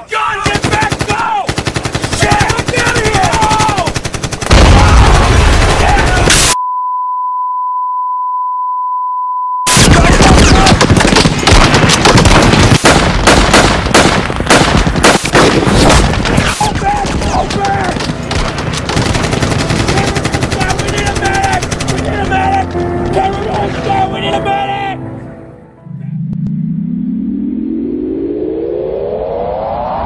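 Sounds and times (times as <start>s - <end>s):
people shouting: 0.0s - 1.5s, 2.1s - 3.9s, 19.8s - 24.9s
rapid automatic gunfire: 0.4s - 6.4s, 9.7s - 22.3s
steady test-tone beep: 6.6s - 9.7s.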